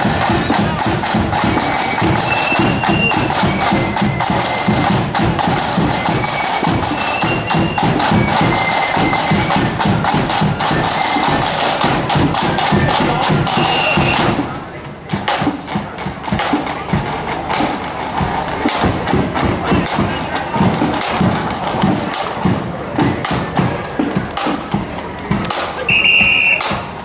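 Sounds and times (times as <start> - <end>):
flutes playing a tune: 0.0 - 14.5, 25.8 - 26.9
side drums beating rapidly: 0.0 - 27.0.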